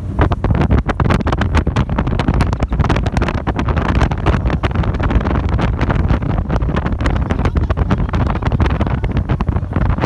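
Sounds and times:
motorboat rumbling: 0.0s - 10.0s
wind buffeting microphone: 0.0s - 10.0s.

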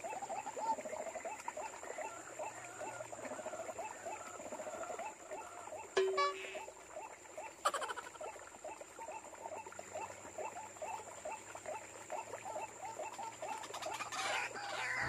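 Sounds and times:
bird calling with short croaks: 5.3s - 6.8s.

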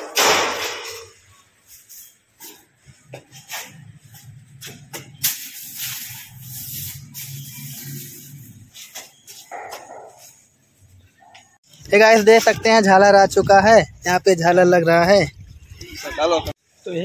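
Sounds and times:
broom scraping concrete floor: 0.6s - 10.6s.

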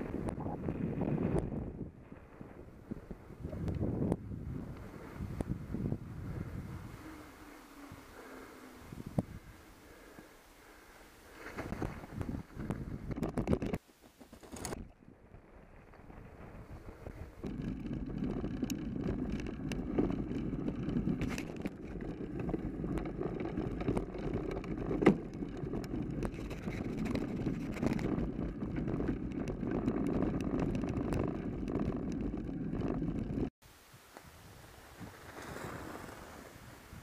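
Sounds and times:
bike tyres crunching on snow: 0.0s - 13.1s, 13.8s - 33.5s, 34.8s - 37.0s
bike rattles and clicks: 11.3s - 33.5s
faint hiss: 33.6s - 37.0s.

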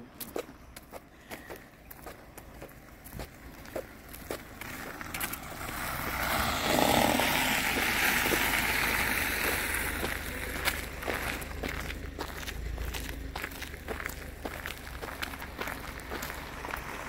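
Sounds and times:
footsteps on sidewalk: 0.0s - 17.0s
car driving past: 4.3s - 17.0s.

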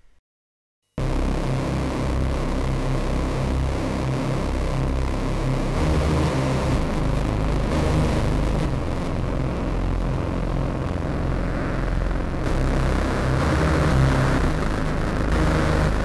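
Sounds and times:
steady low rumble: 6.8s - 16.0s.

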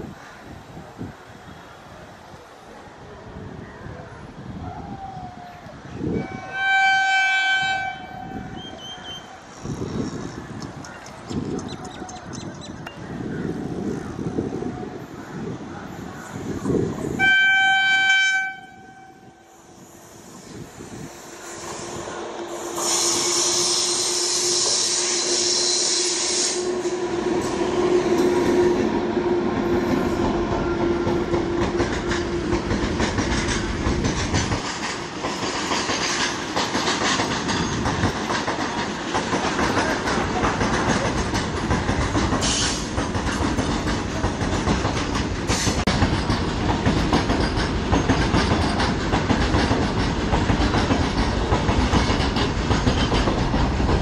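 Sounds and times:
wheels clickety-clack over rail joints: 7.7s - 14.8s, 27.4s - 54.0s
electric locomotive hum: 12.8s - 54.0s
train wagons rumbling: 26.6s - 54.0s.

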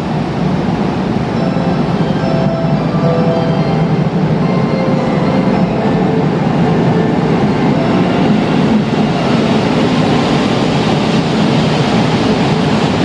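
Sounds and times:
diesel train engines: 0.0s - 13.0s
train wheels rolling: 0.1s - 13.0s.

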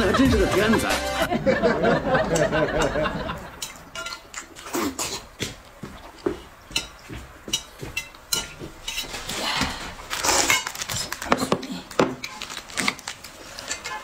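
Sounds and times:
person slurping noodles: 4.6s - 5.3s.

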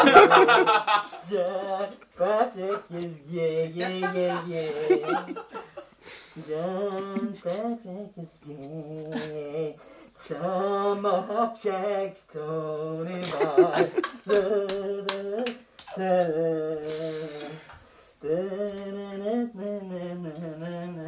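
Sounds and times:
man humming a tune: 1.3s - 5.4s, 6.4s - 9.8s, 13.1s - 21.0s.

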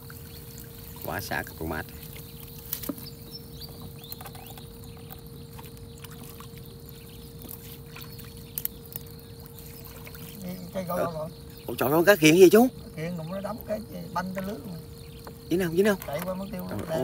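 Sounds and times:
water dripping and splashing: 0.0s - 10.8s
faint steady hum: 0.0s - 17.0s.

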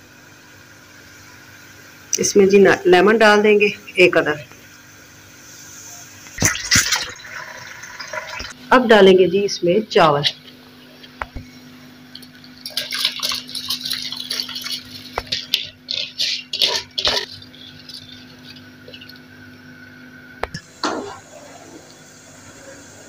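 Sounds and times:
steady low hum: 0.0s - 23.0s
rice pouring into boiling water: 6.4s - 8.6s, 12.2s - 19.3s.

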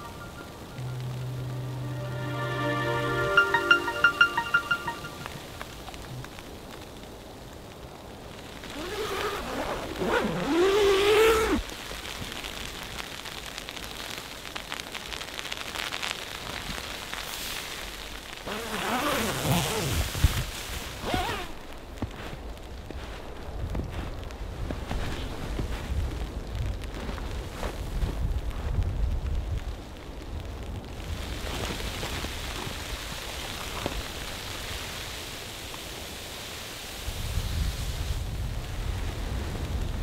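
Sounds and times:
drawn-out pitch-varying sound: 0.0s - 5.6s
wind rumbling on microphone: 5.3s - 40.0s
sleet pattering on a tarp: 8.4s - 29.3s, 30.9s - 39.8s
light ticks and crunches: 20.2s - 35.0s.

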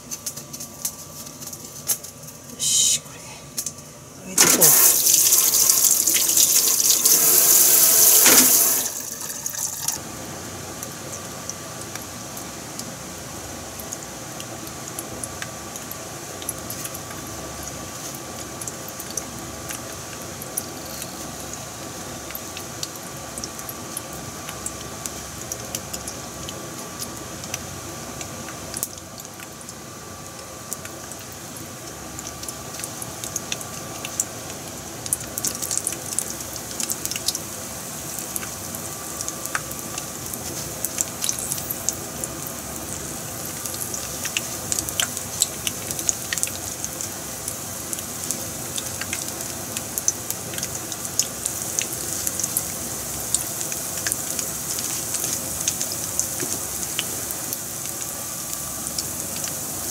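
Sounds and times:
kitchen tap running: 4.4s - 10.0s
oil sizzling in a frying pan: 4.4s - 59.9s
small pops of frying crumbs: 53.3s - 57.1s.

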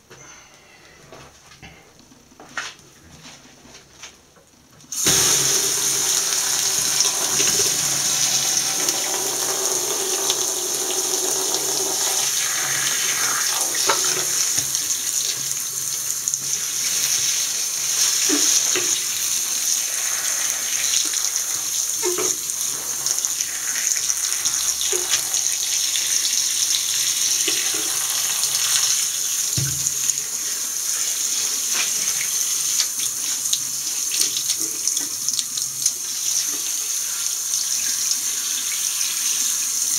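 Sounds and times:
tap running into basin: 5.0s - 15.6s, 18.2s - 28.9s, 29.5s - 30.4s.

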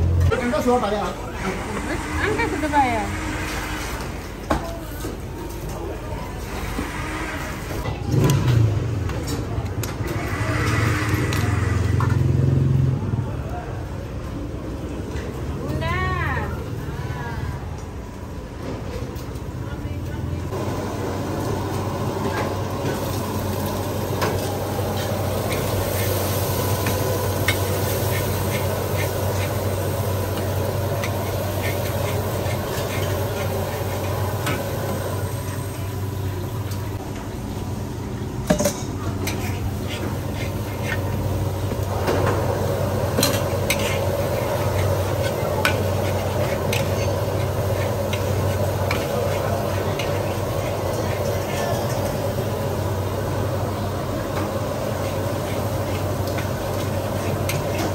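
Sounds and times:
noodles sizzling in a wok: 20.5s - 37.0s, 39.1s - 57.9s.

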